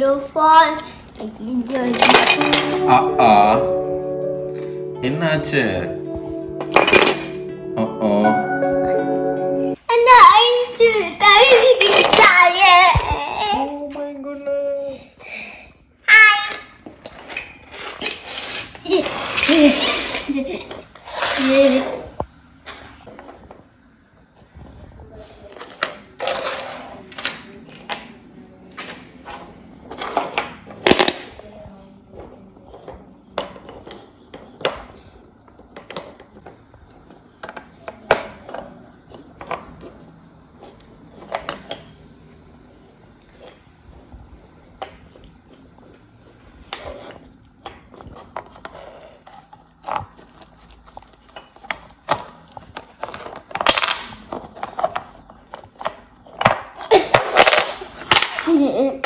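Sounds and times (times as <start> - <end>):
wooden toys clacking on floor: 46.7 - 58.9.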